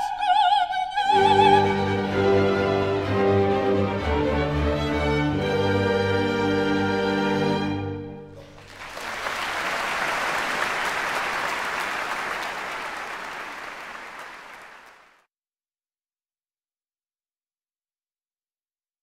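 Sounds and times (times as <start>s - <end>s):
audience applauding: 8.3s - 15.2s.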